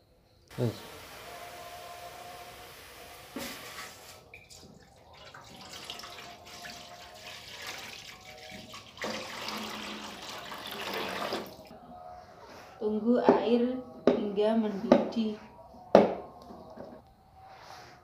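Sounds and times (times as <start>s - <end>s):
water pouring into metal pot: 3.8s - 11.7s.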